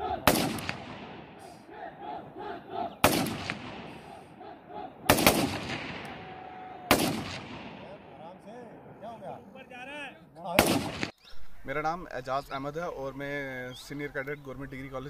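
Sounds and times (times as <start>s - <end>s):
rifle shots echoing: 0.0s - 1.6s, 3.0s - 9.0s, 10.5s - 11.2s.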